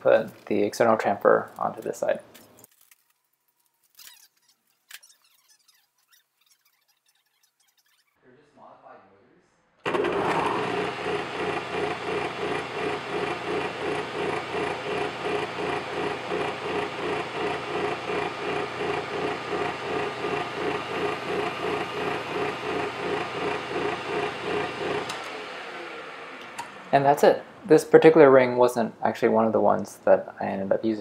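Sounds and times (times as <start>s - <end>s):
metal lathe humming: 9.9s - 28.1s.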